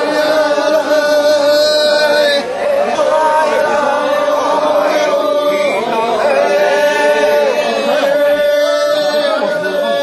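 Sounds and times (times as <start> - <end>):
person singing a chant: 0.0 - 10.0.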